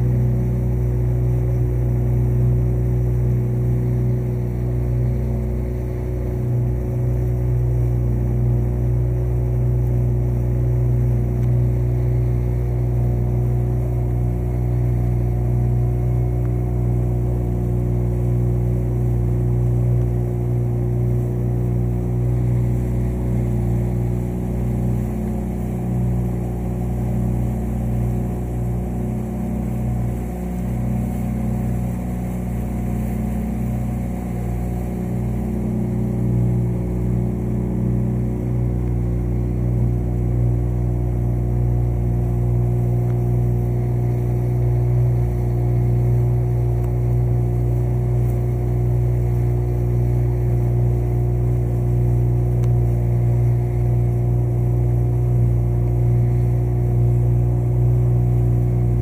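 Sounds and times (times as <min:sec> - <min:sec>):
motorboat engine humming: 0:00.0 - 0:59.0.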